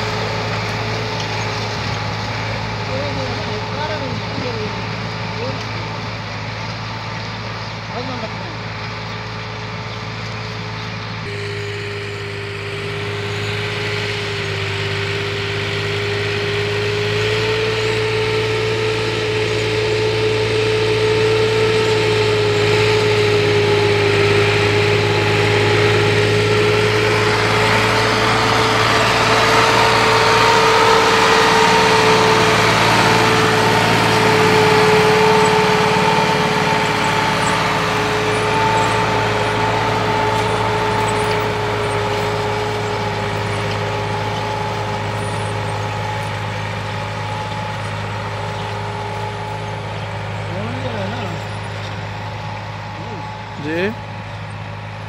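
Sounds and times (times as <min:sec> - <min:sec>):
tractor engine running under load: 0:00.0 - 0:55.0
steady high tone: 0:11.3 - 0:46.3.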